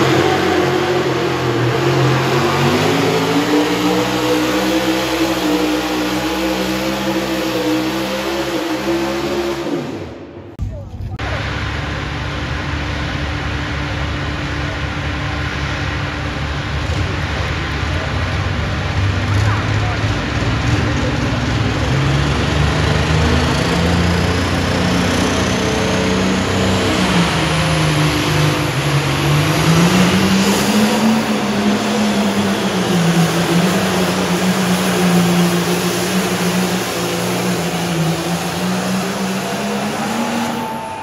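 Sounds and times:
tractor engine running hard: 0:00.0 - 0:10.3, 0:11.2 - 0:41.0.

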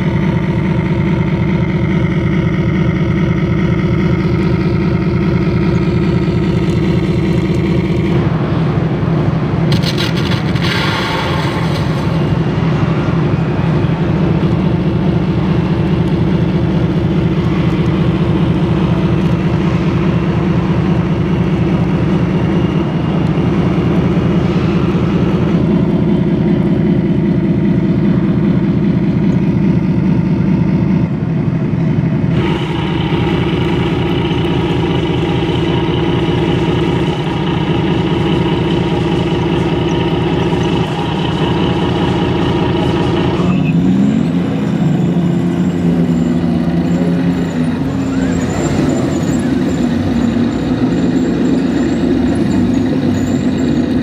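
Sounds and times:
model tank engine drone: 0:00.0 - 0:54.0.

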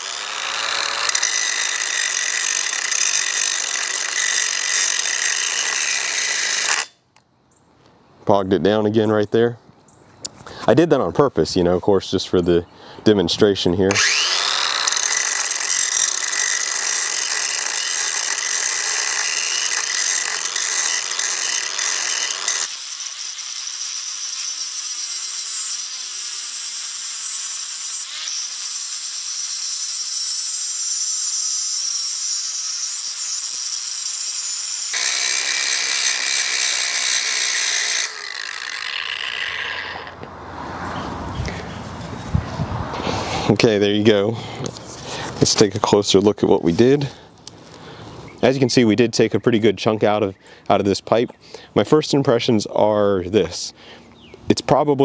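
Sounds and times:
angle grinder grinding metal pipe: 0:00.0 - 0:07.0, 0:13.9 - 0:40.3.

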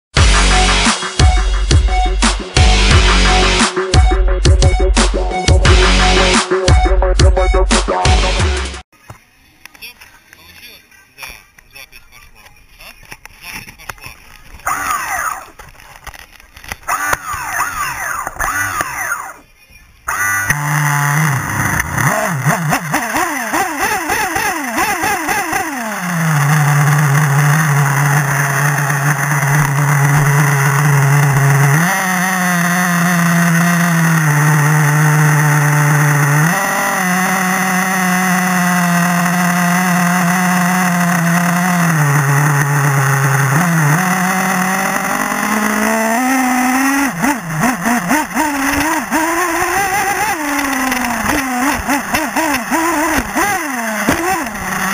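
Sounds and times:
small nitro engine revving: 0:14.6 - 0:19.4, 0:20.1 - 0:54.9.

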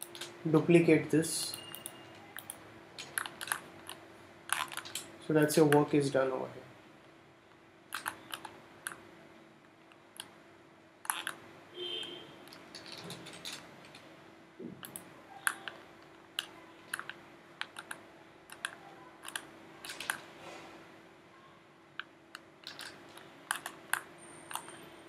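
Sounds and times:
keyboard and mouse clicks: 0:01.5 - 0:05.9, 0:07.5 - 0:09.0, 0:11.0 - 0:11.4, 0:12.4 - 0:20.3, 0:22.0 - 0:24.9.

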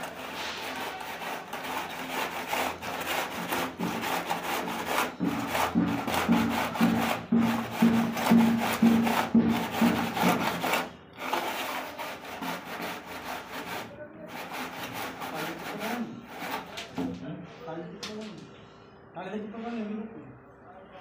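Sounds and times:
hand scraping on cement floor bed: 0:00.0 - 0:16.9.

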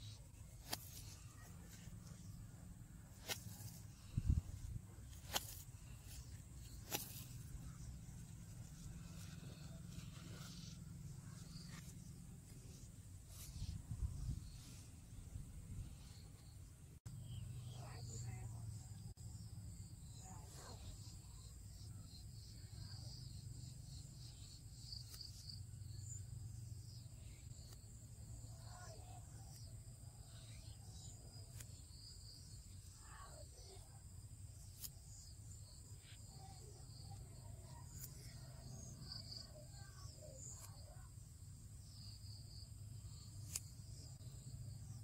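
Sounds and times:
insect trill: 0:17.2 - 0:45.0.

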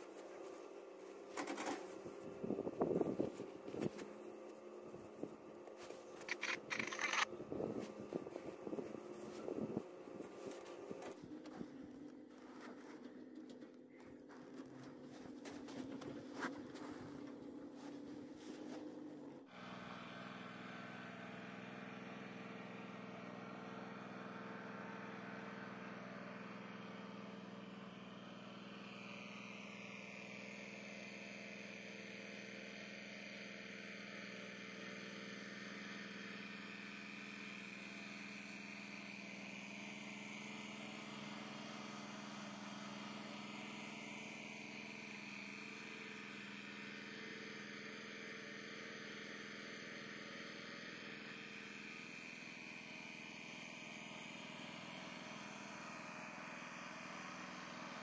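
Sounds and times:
machine engine humming: 0:00.0 - 0:58.0.

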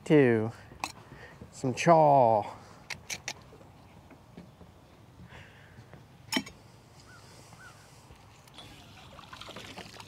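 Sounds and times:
water trickling and dripping: 0:08.4 - 0:10.0.

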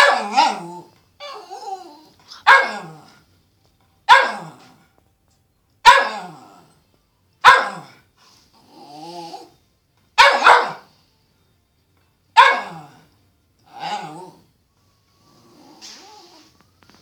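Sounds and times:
dog barking sharply: 0:00.0 - 0:00.5, 0:02.4 - 0:02.9, 0:04.1 - 0:04.6, 0:05.8 - 0:06.3, 0:07.4 - 0:07.9, 0:10.2 - 0:10.9, 0:12.4 - 0:12.8
drawn-out dog sound: 0:10.2 - 0:10.9.

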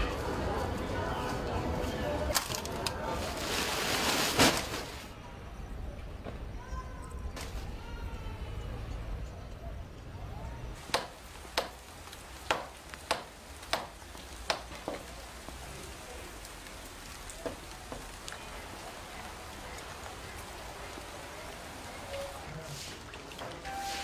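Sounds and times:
rain falling: 0:10.3 - 0:24.0.

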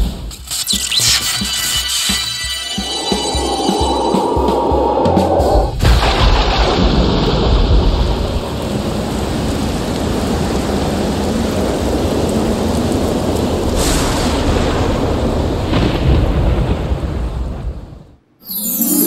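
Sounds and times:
rumbling thunder: 0:05.0 - 0:18.1
heavy rain: 0:05.8 - 0:18.1.

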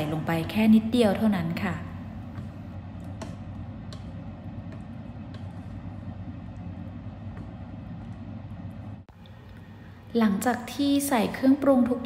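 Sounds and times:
steady low hum: 0:00.0 - 0:12.0
spatula stirring stew: 0:02.3 - 0:09.0.

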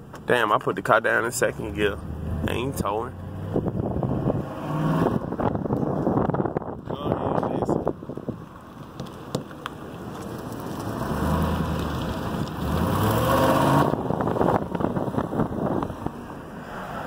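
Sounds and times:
car engine accelerating: 0:01.5 - 0:06.8, 0:10.1 - 0:17.0
tyre and wind noise: 0:02.0 - 0:16.8.

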